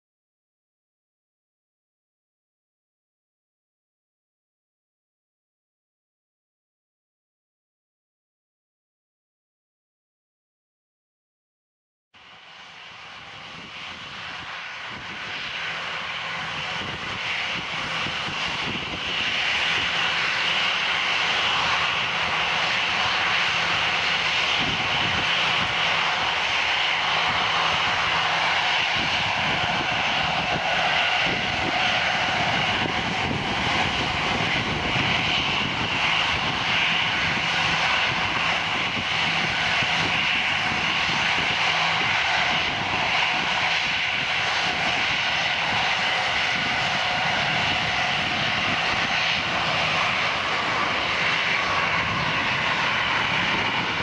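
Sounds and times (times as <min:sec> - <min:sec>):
jet airliner engines whining: 0:12.2 - 0:54.0.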